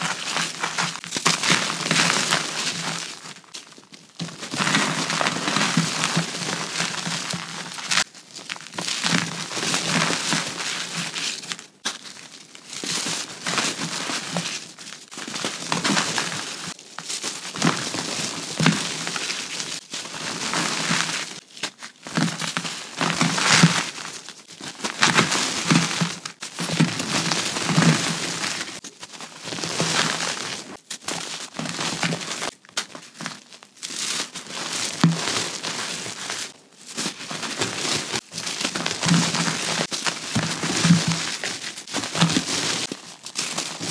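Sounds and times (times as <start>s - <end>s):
grains sifting down: 4.2s - 11.5s.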